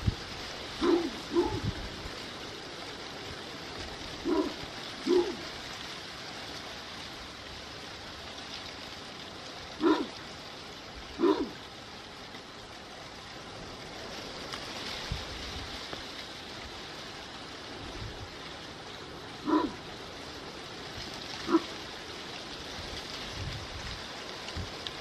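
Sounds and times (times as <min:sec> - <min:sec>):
steady hiss: 0:00.0 - 0:25.0
short animal calls: 0:00.8 - 0:01.7, 0:04.2 - 0:05.5, 0:09.8 - 0:10.2, 0:11.2 - 0:11.6, 0:19.4 - 0:19.8.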